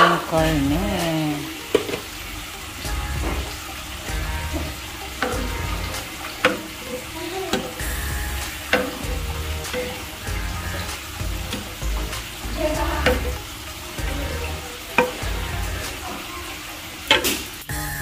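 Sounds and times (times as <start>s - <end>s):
meat sizzling in a pan: 1.0s - 18.0s
spatula knocking against pan: 4.1s - 12.4s, 13.0s - 14.3s.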